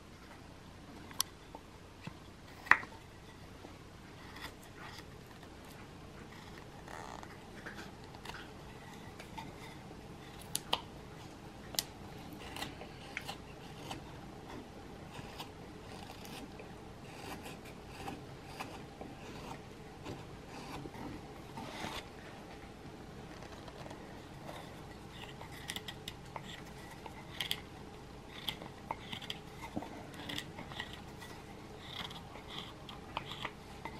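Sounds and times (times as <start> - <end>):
knife whittling wood: 12.2 - 22.1.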